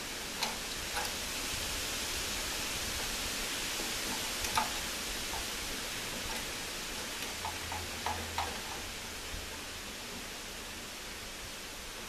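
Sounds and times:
steady background hiss: 0.0 - 12.0.

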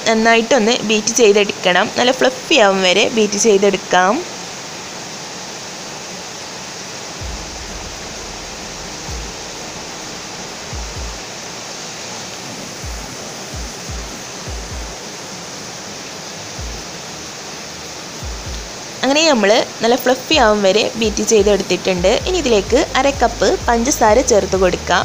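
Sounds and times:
low thuds: 7.2 - 11.4.

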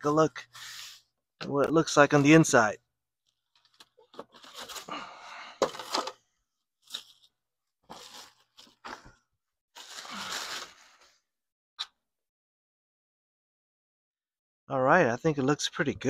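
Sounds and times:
plastic bag crinkling: 7.9 - 9.0, 9.8 - 10.9
foam packing pulled from box: 9.8 - 11.0.

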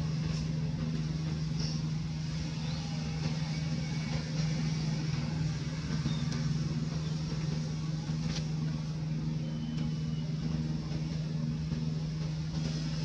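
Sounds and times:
faint high chirps: 9.4 - 10.4.

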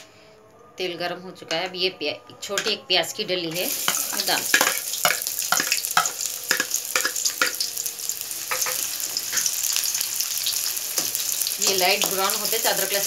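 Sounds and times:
onion sizzling in oil: 3.5 - 13.0.

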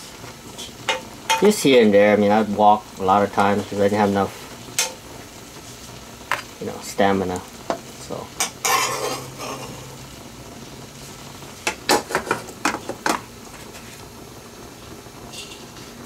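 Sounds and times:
metal spoon scraping a pan: 8.4 - 9.8.

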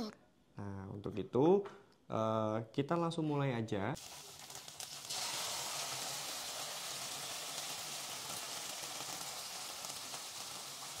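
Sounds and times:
food sizzling in a frying pan: 4.0 - 11.0.

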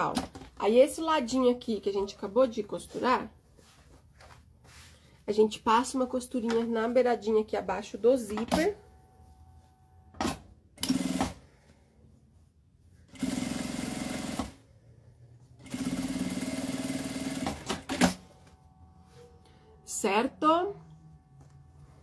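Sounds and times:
sewing machine stitching: 13.1 - 14.6, 15.6 - 18.2.

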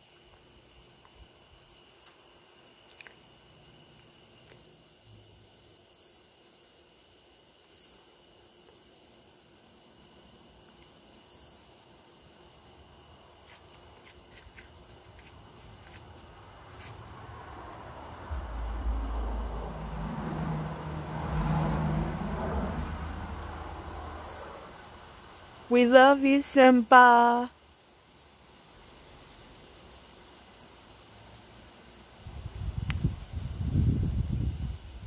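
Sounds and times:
crickets chirping: 0.0 - 35.0
low rumble: 16.9 - 25.1.

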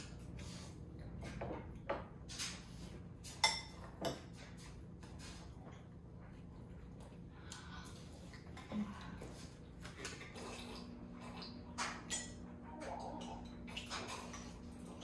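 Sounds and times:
utensils clinking on plates: 3.2 - 4.7, 11.3 - 15.0.

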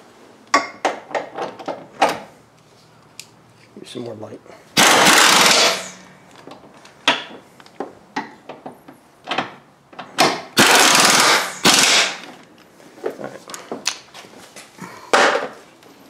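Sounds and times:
air impact wrench bursts: 4.8 - 6.1, 10.6 - 12.4.

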